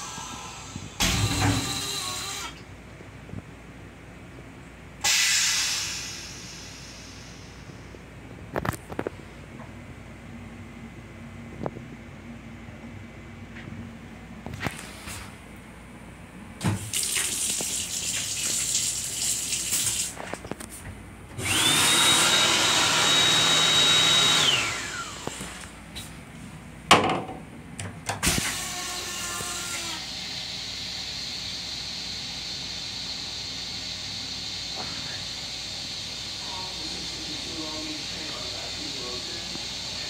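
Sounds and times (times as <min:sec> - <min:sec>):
water running from faucet: 0:16.8 - 0:20.2
hand dryer whining: 0:21.4 - 0:25.7.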